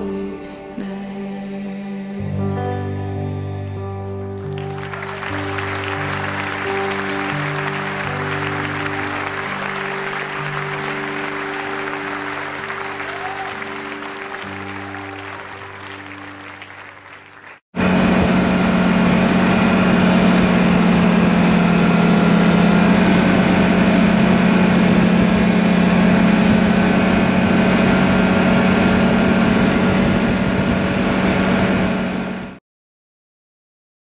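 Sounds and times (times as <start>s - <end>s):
background music: 0.0s - 17.6s
snowmobile engine running: 4.8s - 15.2s, 17.8s - 32.5s
wind and track noise: 17.8s - 32.4s.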